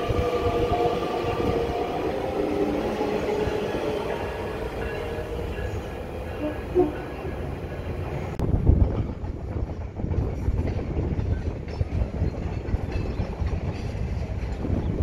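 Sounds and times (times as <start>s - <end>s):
train wheels rumbling on rail: 0.0s - 15.0s
clacks over rail joints: 6.3s - 15.0s.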